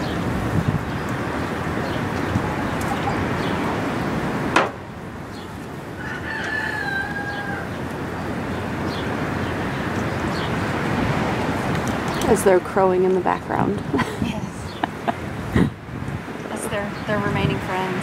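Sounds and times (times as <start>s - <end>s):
rooster crowing: 5.9s - 8.0s.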